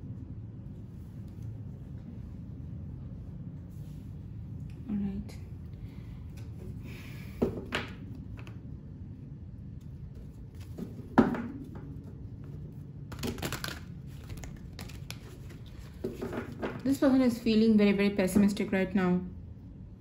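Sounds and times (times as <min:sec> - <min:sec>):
cards being shuffled: 0:12.4 - 0:16.8.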